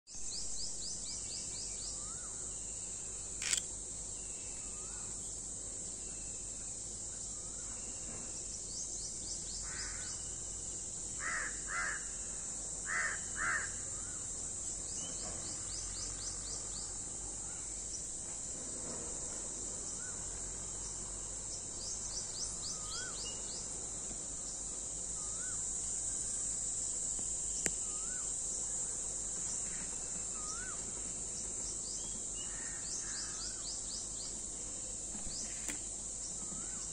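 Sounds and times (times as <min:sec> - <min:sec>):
high insect drone: 0:00.1 - 0:36.9
crow cawing: 0:11.2 - 0:12.1, 0:12.9 - 0:13.8
small birds whistling and chirping: 0:22.4 - 0:23.6.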